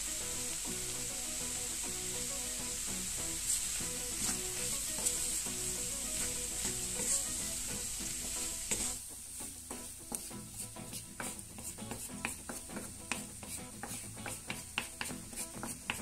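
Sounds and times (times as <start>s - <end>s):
vegetables sizzling in a frying pan: 0.0s - 16.0s
spatula scraping and tapping pan: 3.2s - 16.0s.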